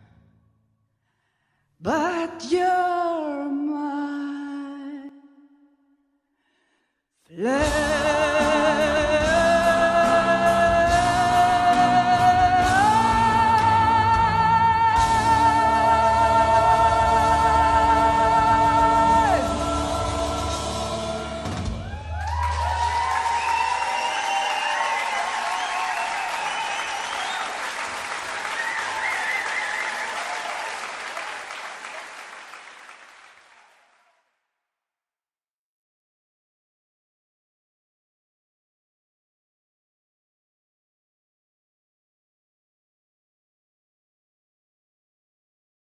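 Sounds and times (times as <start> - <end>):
bass: 7.4 - 27.4
piano: 7.5 - 24.6
drums: 7.5 - 27.4
choir voices: 7.7 - 22.1
audience applauding: 21.5 - 34.2.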